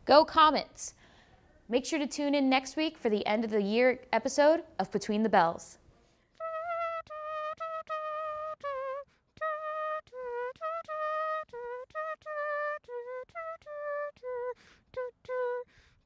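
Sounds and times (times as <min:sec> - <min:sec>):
woman humming: 0:06.4 - 0:15.7.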